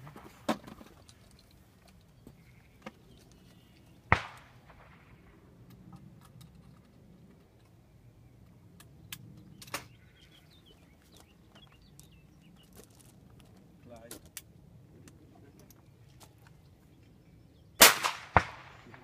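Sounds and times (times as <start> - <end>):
shotgun shot: 4.1 - 5.2, 17.8 - 19.0.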